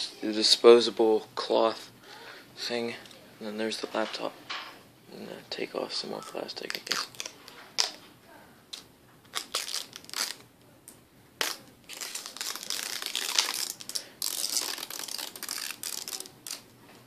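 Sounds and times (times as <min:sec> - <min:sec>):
plastic wrap crinkling: 0:06.2 - 0:08.0, 0:08.7 - 0:10.5, 0:11.4 - 0:16.7.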